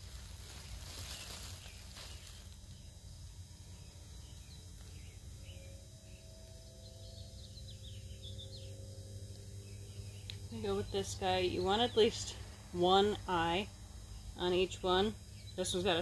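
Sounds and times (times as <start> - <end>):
low steady rumble: 0.0 - 16.0
faint bird chirps: 0.2 - 12.2.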